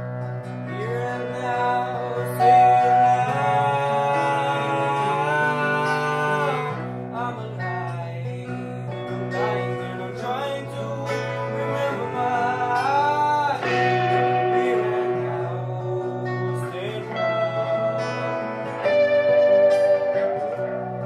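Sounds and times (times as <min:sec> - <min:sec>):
acoustic guitar: 0:00.0 - 0:21.0
person singing long notes: 0:00.6 - 0:21.0.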